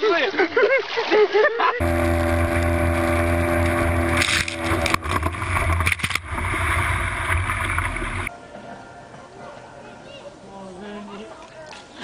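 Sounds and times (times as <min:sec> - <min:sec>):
outboard motor running: 0:01.8 - 0:08.3
water rushing past hull: 0:01.8 - 0:08.3.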